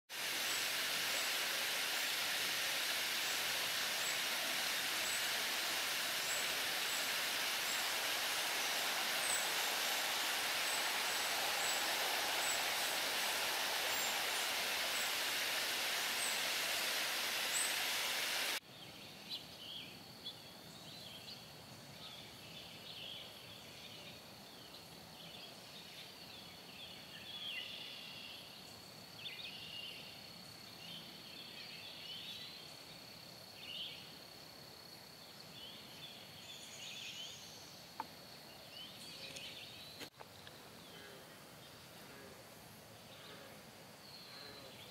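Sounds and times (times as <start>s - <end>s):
high insect drone: 0.2s - 18.6s
water rushing over dam: 0.2s - 18.6s
birds chirping: 0.4s - 18.6s.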